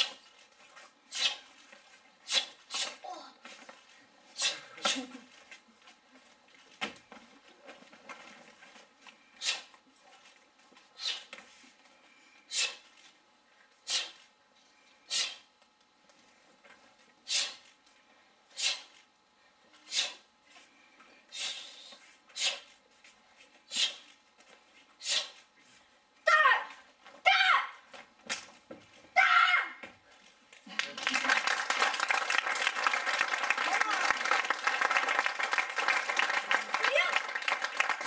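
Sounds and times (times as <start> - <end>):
sharp breathy exhalations: 19.9 - 20.3.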